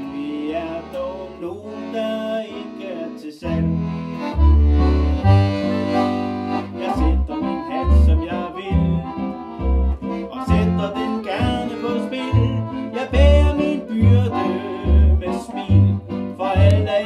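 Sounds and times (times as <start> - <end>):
accordion bass notes: 0.0 - 17.0
accordion melody: 0.0 - 17.0.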